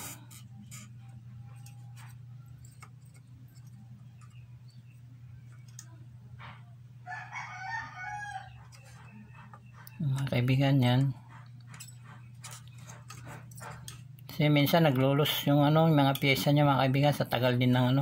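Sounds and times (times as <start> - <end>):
steady low hum: 0.0 - 18.0
rooster crowing: 7.0 - 8.8.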